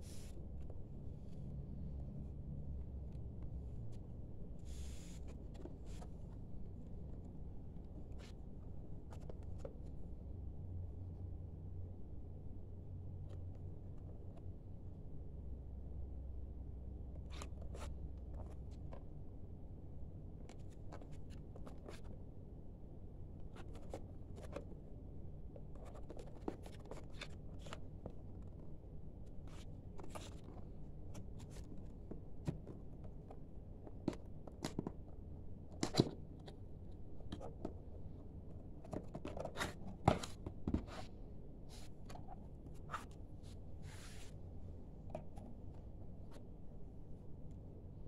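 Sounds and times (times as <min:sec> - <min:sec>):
hands handling cardboard box: 0:38.6 - 0:44.4.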